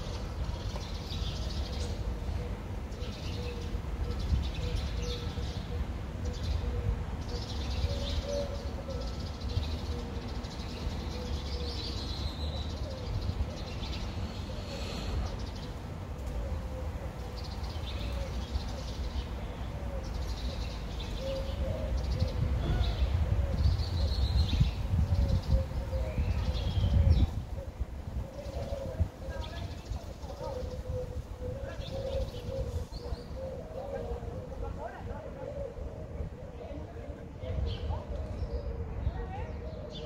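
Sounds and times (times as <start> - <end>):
wind rumble on microphone: 21.2 - 40.0
pigeon cooing: 25.1 - 36.7.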